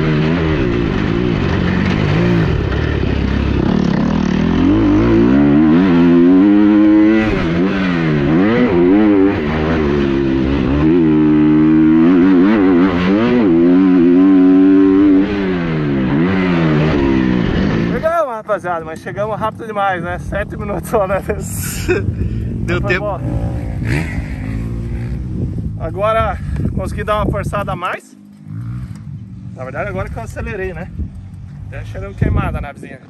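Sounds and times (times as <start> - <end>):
motocross bike engine revving: 0.0 - 18.1, 20.3 - 26.6, 28.2 - 30.5.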